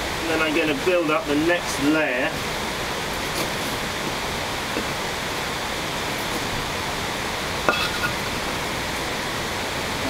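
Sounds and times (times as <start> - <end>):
steady hiss: 0.0 - 10.0.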